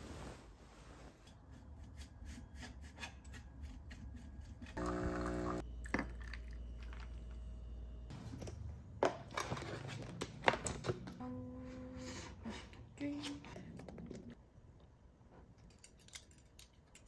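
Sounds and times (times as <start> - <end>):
espresso machine buzzing and humming: 4.8 - 5.7.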